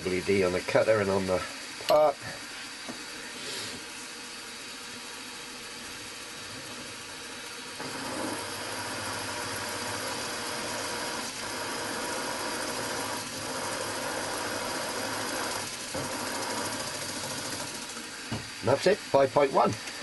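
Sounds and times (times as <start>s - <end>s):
milling machine spindle running: 4.2s - 20.0s.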